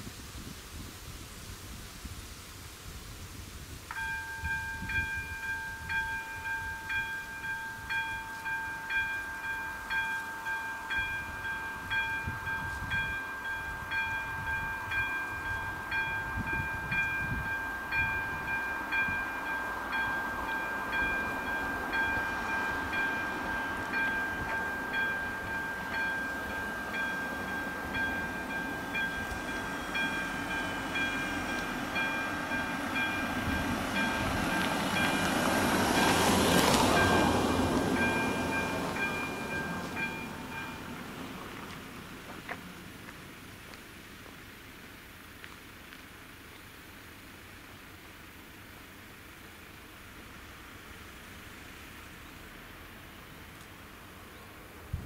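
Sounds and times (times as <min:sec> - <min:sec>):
traffic rumble: 0:03.8 - 0:55.0
level crossing warning bell: 0:03.9 - 0:41.7.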